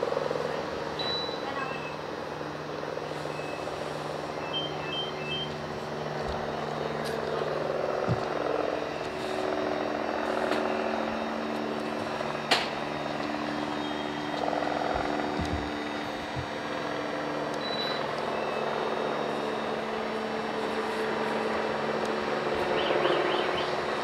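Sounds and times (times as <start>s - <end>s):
low mechanical hum: 0.0s - 24.0s
short high beeps: 1.0s - 2.0s, 17.6s - 19.8s.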